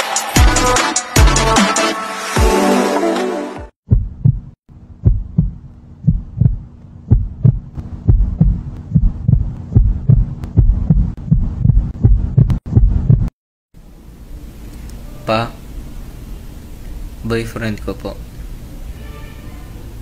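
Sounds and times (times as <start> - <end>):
heartbeat thumps: 3.8 - 13.4
low steady hum: 4.0 - 20.0.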